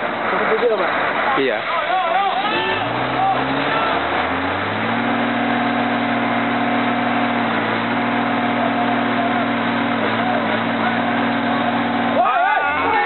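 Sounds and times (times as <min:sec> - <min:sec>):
diesel truck engine running: 0:00.0 - 0:13.0.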